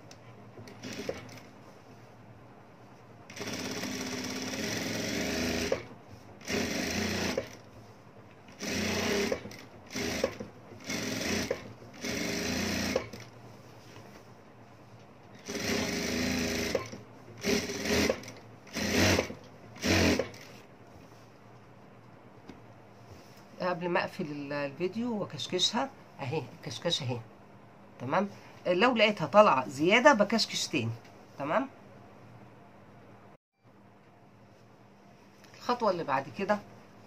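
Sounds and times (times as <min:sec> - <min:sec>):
sewing machine stitching: 0:00.7 - 0:01.5, 0:03.3 - 0:07.6, 0:08.6 - 0:13.3, 0:15.4 - 0:20.6.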